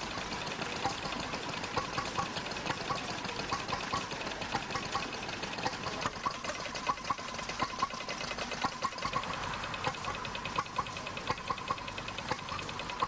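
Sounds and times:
stationary engine running slowly: 0.0s - 13.0s.

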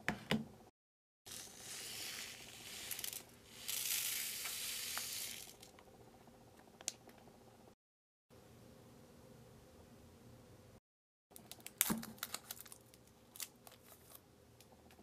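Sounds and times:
sprinkles pouring into plastic tray: 1.3s - 5.7s.

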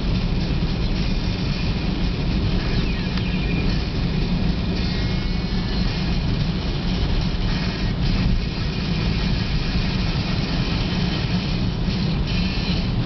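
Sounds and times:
tyres and engine rumble: 0.0s - 13.0s
rain and spray hissing: 4.0s - 13.0s.

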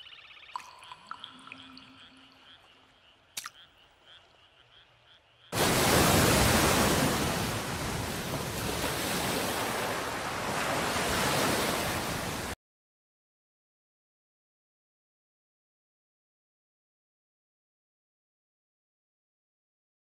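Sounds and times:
frogs croaking: 0.0s - 7.6s
rush of water: 5.6s - 12.6s.

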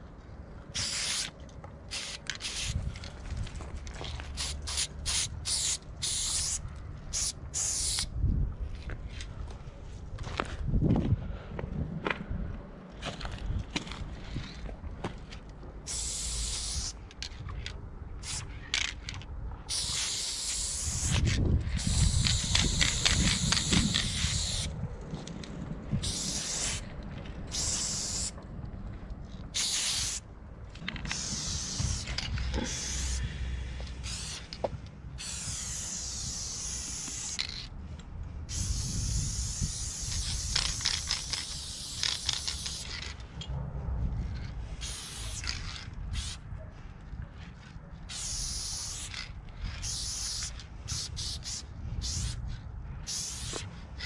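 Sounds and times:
spray paint can hissing: 0.7s - 2.8s, 4.2s - 8.1s, 15.8s - 17.0s, 18.2s - 18.5s, 19.7s - 24.7s, 26.0s - 26.9s, 27.5s - 28.4s, 29.5s - 30.3s, 31.0s - 33.3s, 34.0s - 34.6s, 35.2s - 37.7s, 38.5s - 43.2s, 44.8s - 46.4s, 48.1s - 52.4s, 53.0s - 53.7s
low rumble: 43.1s - 46.7s.

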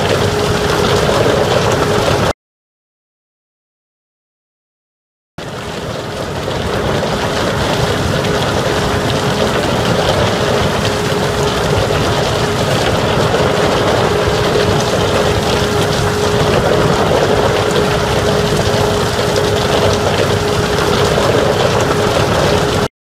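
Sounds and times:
rock ore pouring through chute: 0.0s - 2.3s, 5.6s - 22.9s
faint steady hum: 5.6s - 22.9s.

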